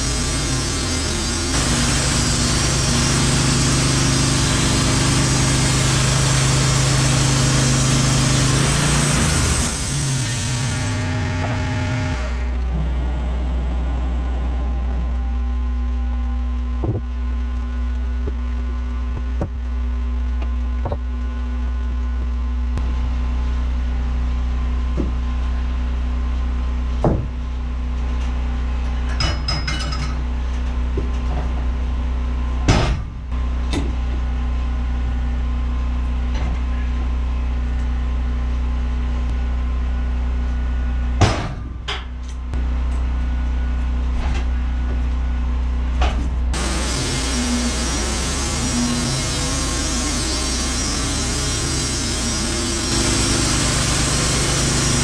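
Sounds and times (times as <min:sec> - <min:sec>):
sawmill engine idling: 0:00.0 - 0:21.8, 0:46.5 - 0:55.0
wooden knocks and thuds: 0:16.8 - 0:17.1, 0:20.8 - 0:21.0, 0:27.0 - 0:27.4.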